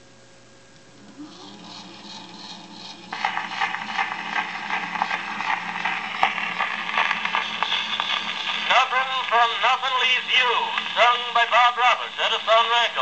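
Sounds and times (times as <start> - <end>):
phonograph mechanism ticking: 1.0 - 12.4
stylus hiss and crackle: 3.1 - 13.0.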